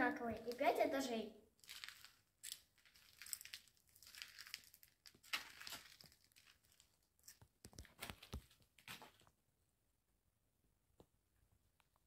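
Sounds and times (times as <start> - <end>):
footsteps crunching on rubble: 1.6 - 9.3.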